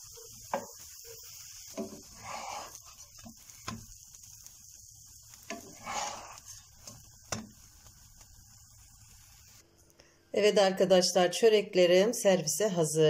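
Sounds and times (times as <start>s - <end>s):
faint hiss of frying: 0.0s - 13.0s
spatula scraping frying pan: 0.1s - 4.0s, 5.3s - 8.3s.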